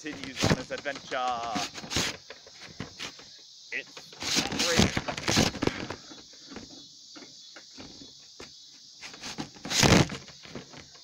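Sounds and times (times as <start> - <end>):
handling clicks and rattles: 0.0 - 3.2
insects chirring: 0.0 - 11.0.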